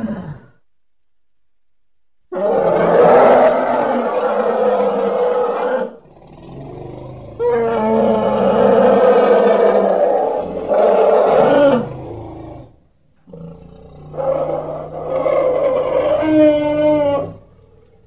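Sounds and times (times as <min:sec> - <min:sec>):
elephant calf crying: 0:07.4 - 0:11.9, 0:14.1 - 0:17.7.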